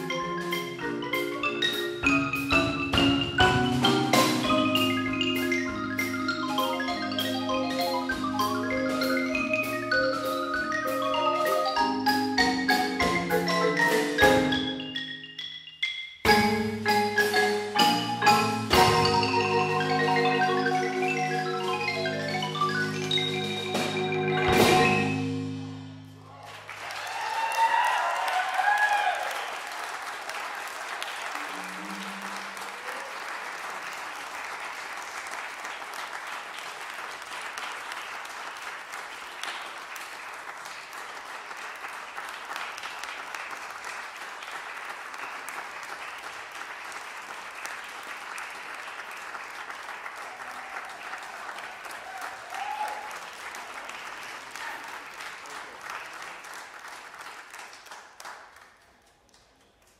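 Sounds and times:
audience applauding: 26.2s - 59.9s.

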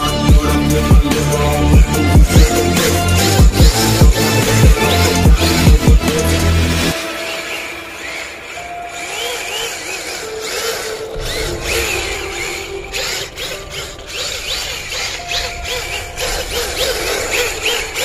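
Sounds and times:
deep bass: 0.0s - 6.9s
electronic music: 0.0s - 18.0s
sweeping synth glides: 0.0s - 18.0s.

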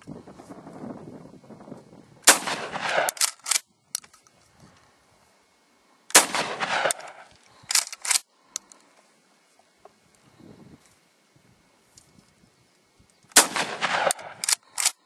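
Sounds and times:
shotgun shots with echo: 2.3s - 3.2s, 6.1s - 7.3s, 13.4s - 14.4s.

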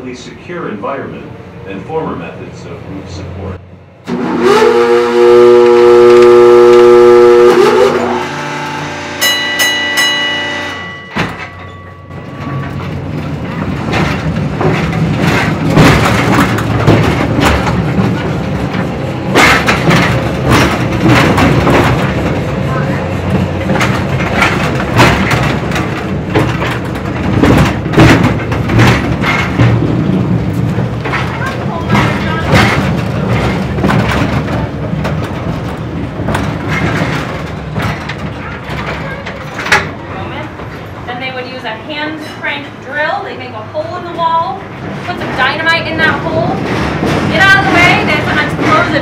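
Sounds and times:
ride car rumbling along track: 0.0s - 49.0s
metallic clanks and rattles: 9.3s - 41.2s, 46.4s - 49.0s.

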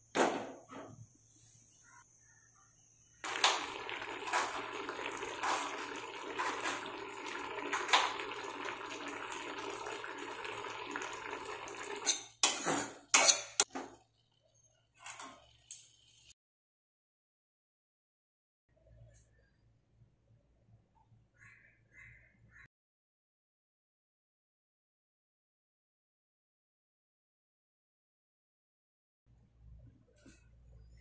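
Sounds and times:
water boiling in pan: 3.2s - 14.1s.

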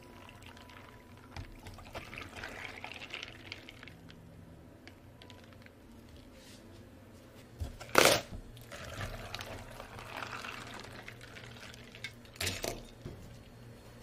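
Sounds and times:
liquid pouring into plastic cup: 0.1s - 4.2s, 8.6s - 12.8s.

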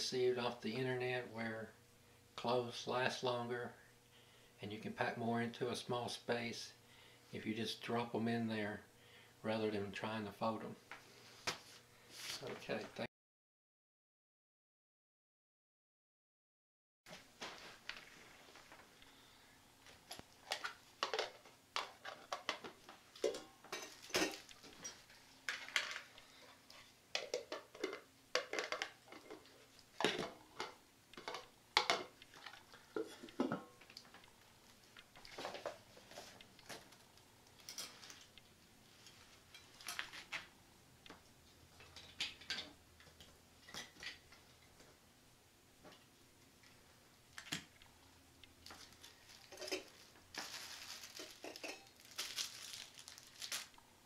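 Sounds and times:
metal cookware clinking together: 23.2s - 25.0s, 49.5s - 49.9s, 51.4s - 51.9s.

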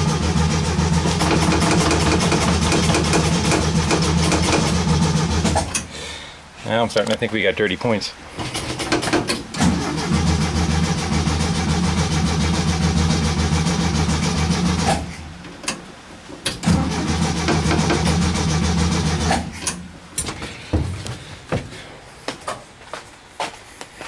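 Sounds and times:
starter motor cranking engine: 0.0s - 5.9s, 8.4s - 15.8s, 16.5s - 19.8s.

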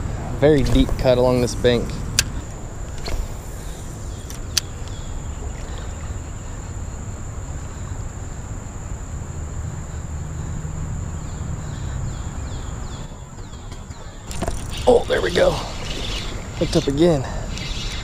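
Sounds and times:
high-pitched insect drone: 14.3s - 18.0s.

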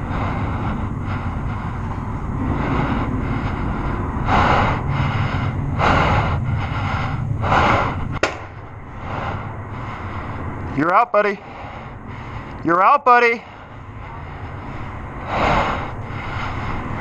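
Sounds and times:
heavy breathing: 0.0s - 12.8s, 13.4s - 17.0s
low background rumble: 0.0s - 17.0s
sharp crack: 8.2s - 8.6s.

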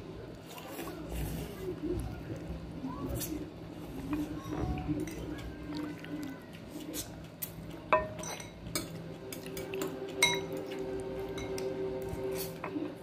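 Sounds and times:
ladle clinking on bowl and pot: 7.9s - 10.7s, 11.3s - 11.7s.

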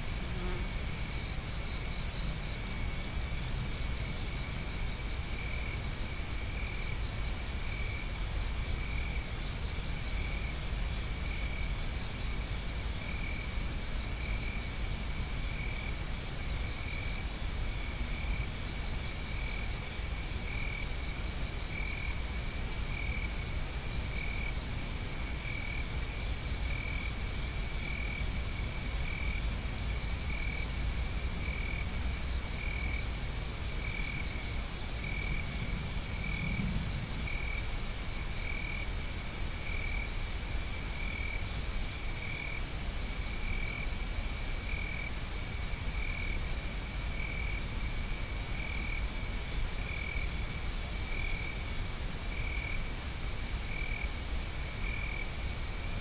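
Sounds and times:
steady hiss: 0.0s - 56.0s.

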